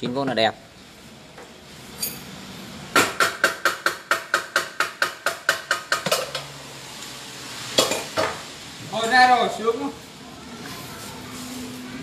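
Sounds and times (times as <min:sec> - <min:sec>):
hammer tapping on metal: 0:03.0 - 0:06.3.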